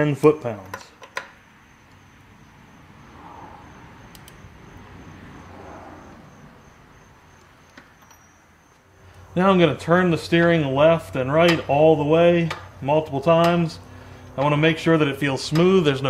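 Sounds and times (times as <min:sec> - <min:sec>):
light clicks: 0:04.1 - 0:04.4.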